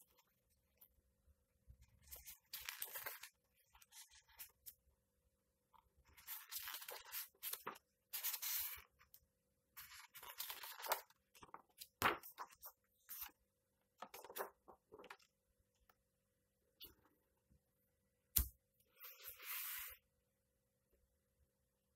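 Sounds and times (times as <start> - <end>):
pages turning: 2.0 - 4.7, 6.2 - 8.8, 9.8 - 13.4, 14.0 - 15.3.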